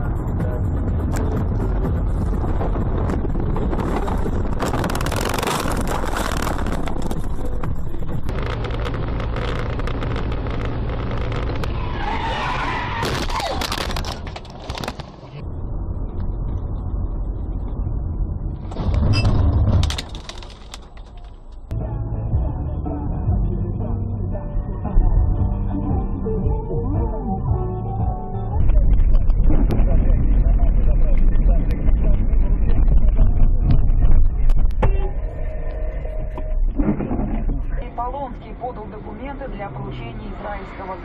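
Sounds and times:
car engine and road noise: 0:00.0 - 0:41.0
tyres skidding: 0:00.4 - 0:15.4.

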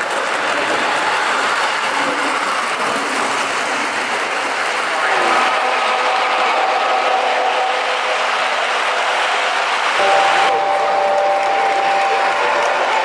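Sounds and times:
model train whirring and rumbling: 0:00.0 - 0:13.0
steady tone: 0:05.9 - 0:13.0.

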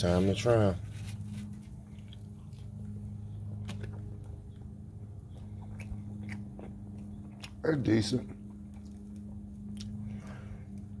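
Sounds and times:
steady low hum: 0:00.0 - 0:11.0
person chewing tortilla: 0:00.1 - 0:11.0.

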